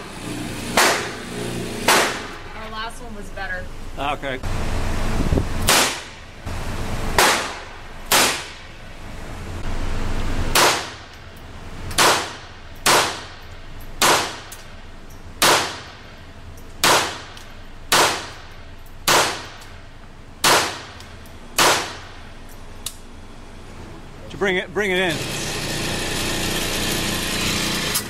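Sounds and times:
handgun shots with ringing echo: 16.8s - 18.4s.

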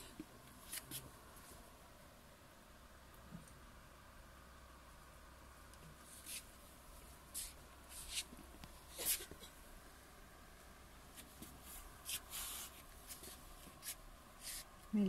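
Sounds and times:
faint rustling handling noise: 5.8s - 9.7s, 11.0s - 14.8s.

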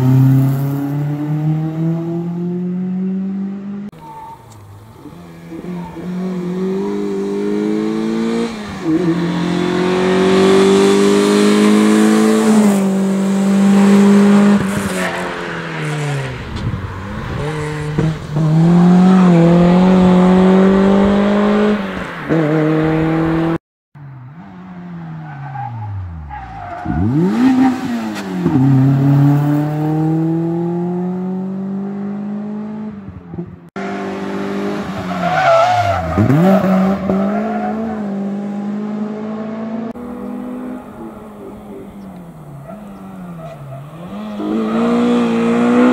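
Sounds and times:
car engine revving hard: 5.5s - 15.3s, 17.1s - 23.6s, 33.8s - 45.9s.

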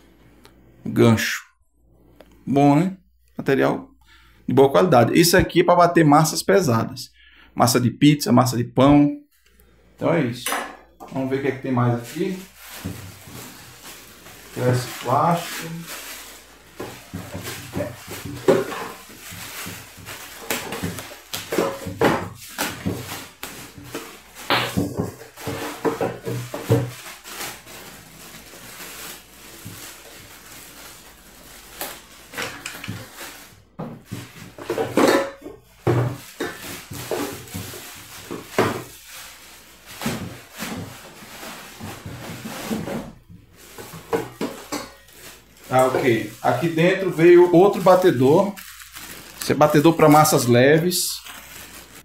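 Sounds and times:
plastic film crinkling: 11.2s - 34.8s, 35.7s - 52.0s.

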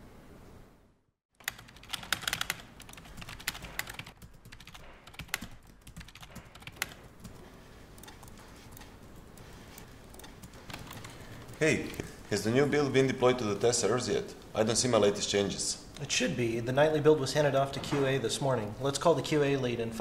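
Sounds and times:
typing on computer keyboard: 1.4s - 12.1s.

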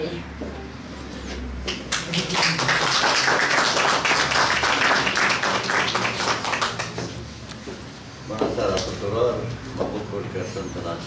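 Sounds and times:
audience applause: 1.8s - 7.0s.

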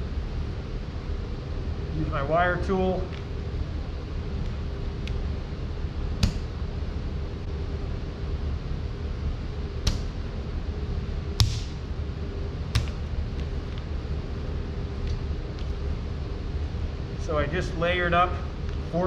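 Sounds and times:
steady low hum: 0.0s - 19.0s
wet clay slapping on table: 11.4s - 11.8s, 12.8s - 13.0s.

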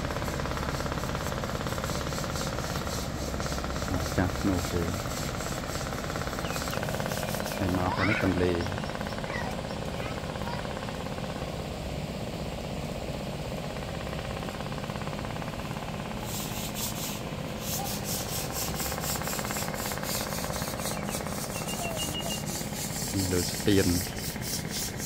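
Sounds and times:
scratchy rubbing noise: 16.3s - 25.0s.

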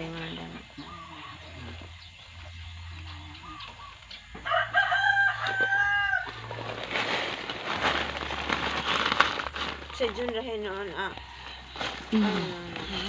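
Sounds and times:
rooster crowing: 4.4s - 6.7s.

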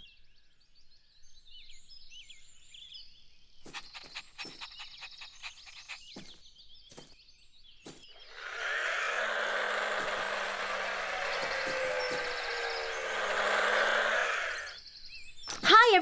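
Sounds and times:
birds chirping: 0.0s - 16.0s
toy car motor whirring: 3.8s - 6.1s, 8.2s - 14.8s.

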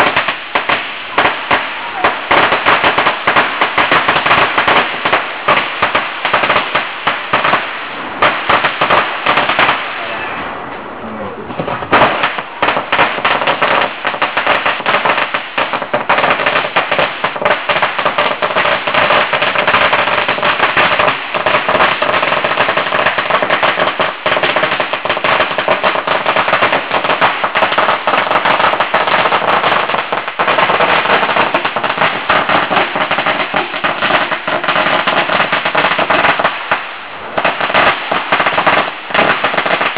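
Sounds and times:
firecrackers crackling: 0.0s - 39.9s.

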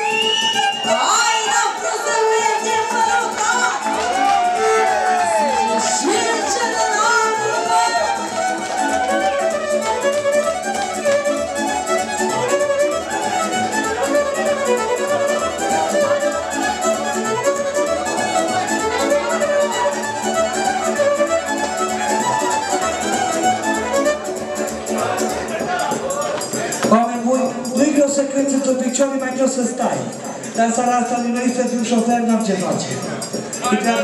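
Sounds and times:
violin playing a dance tune: 0.0s - 25.3s.

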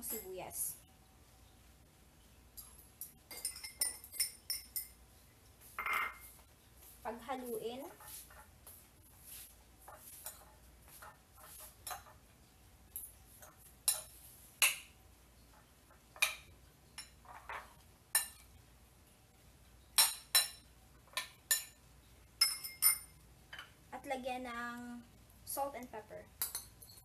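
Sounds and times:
cutlery clinking on plate: 2.6s - 5.0s, 5.8s - 6.4s, 22.4s - 23.8s, 26.4s - 27.0s.

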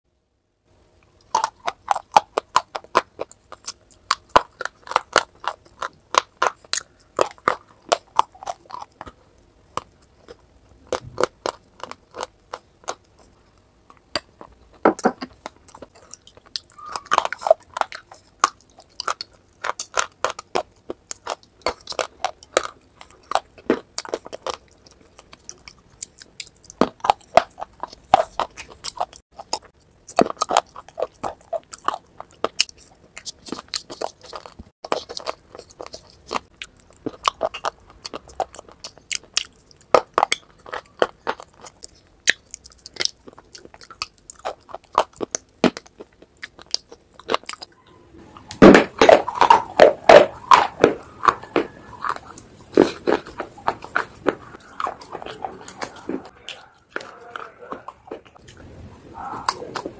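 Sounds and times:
crunching and chewing: 0.7s - 59.9s.

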